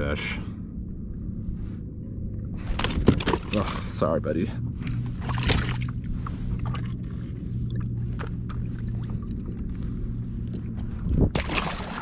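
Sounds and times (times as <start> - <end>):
steady low hum: 0.0 - 12.0
water lapping against kayak hull: 2.2 - 4.1, 4.7 - 12.0.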